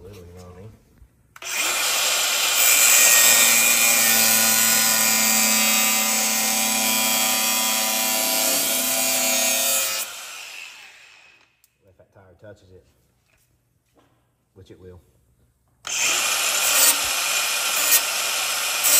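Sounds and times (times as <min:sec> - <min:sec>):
power tool running: 0:01.4 - 0:11.5, 0:15.9 - 0:18.9.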